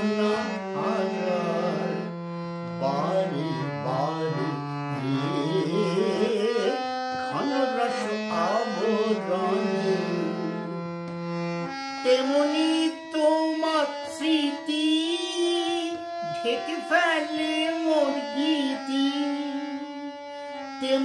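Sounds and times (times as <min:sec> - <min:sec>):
man singing: 0:00.0 - 0:10.9, 0:12.0 - 0:20.0, 0:20.7 - 0:21.0
harmonium chords: 0:00.0 - 0:21.0.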